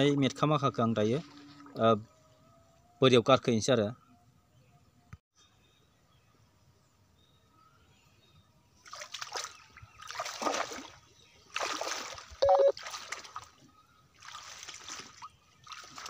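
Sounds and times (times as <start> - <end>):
footsteps through wet vegetation: 8.8 - 16.0.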